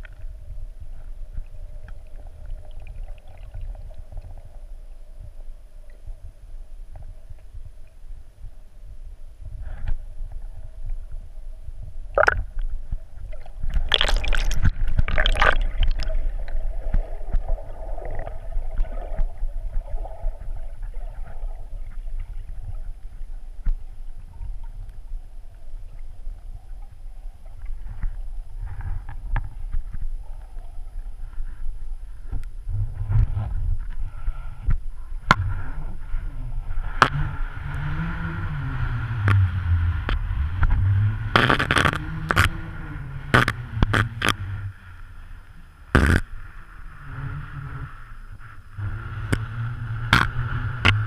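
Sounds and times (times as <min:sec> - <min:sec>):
muffled underwater rumble: 0:00.0 - 0:51.0
rushing bubbling water: 0:01.8 - 0:04.4, 0:12.1 - 0:23.1.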